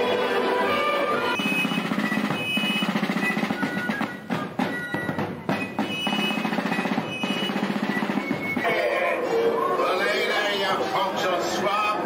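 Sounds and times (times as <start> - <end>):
snare drumming: 1.3 - 9.0.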